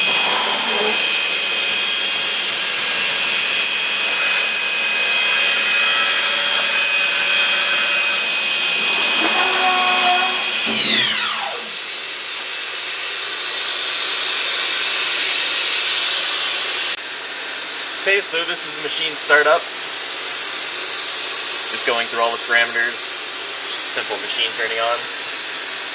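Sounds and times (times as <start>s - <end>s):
motor whining: 0.0s - 12.3s.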